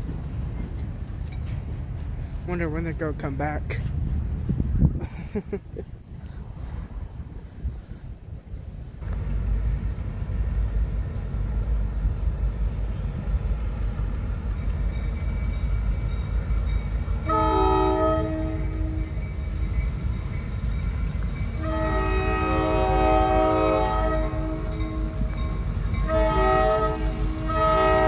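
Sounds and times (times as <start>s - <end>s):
steady low rumble: 0.0s - 17.2s
locomotive horn blasts: 17.2s - 19.2s, 21.5s - 25.3s, 26.0s - 28.0s.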